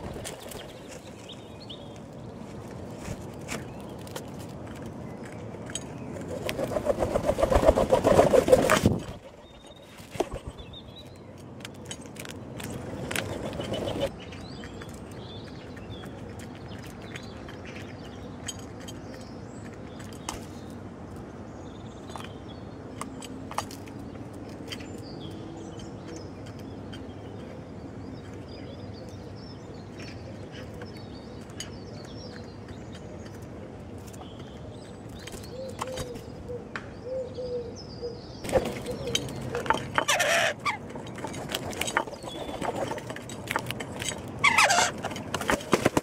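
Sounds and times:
birds pecking clicks: 0.0 - 36.2, 38.5 - 46.0
bird calls: 5.0 - 20.8, 21.6 - 46.0
wing flaps: 6.2 - 10.7, 38.5 - 46.0.

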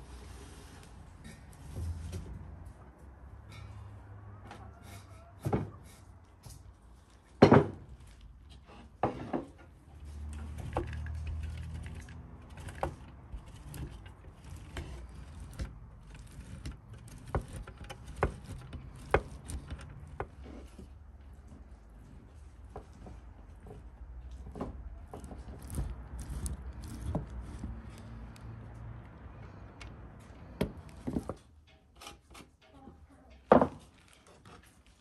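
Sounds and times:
cheese grating on metal grater: 10.6 - 20.4, 25.2 - 28.4.

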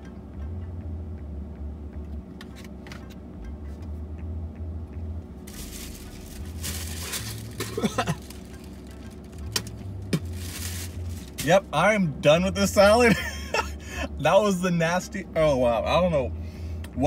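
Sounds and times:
low car hum: 0.0 - 17.0
paper bag and napkin rustling: 5.5 - 9.4, 10.2 - 11.5.

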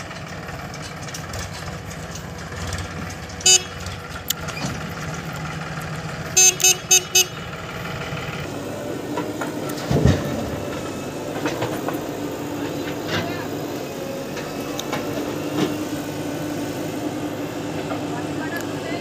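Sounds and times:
diesel engines running: 0.0 - 19.0
vehicle horn beeps: 3.4 - 3.9, 6.4 - 7.4.

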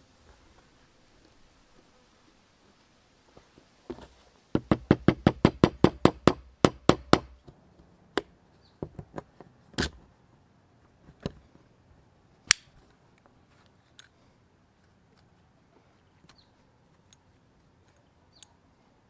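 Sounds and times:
sharp metal clicks: 12.4 - 12.8.

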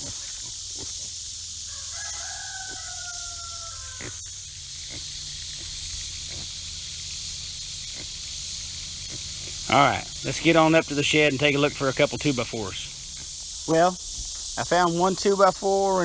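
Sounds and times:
steady high hiss: 0.0 - 16.0
rooster crowing: 1.6 - 4.3.

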